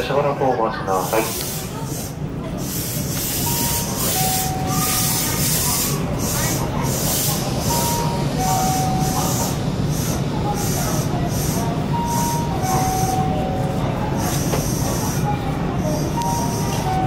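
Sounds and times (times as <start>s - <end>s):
electric train low hum: 0.0s - 17.0s
two-tone chime: 7.7s - 9.4s.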